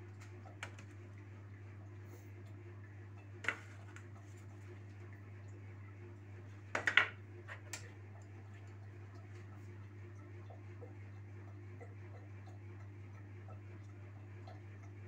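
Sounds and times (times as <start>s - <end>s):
steady low hum: 0.0s - 15.0s
dishes clinking and knocking: 6.7s - 7.7s.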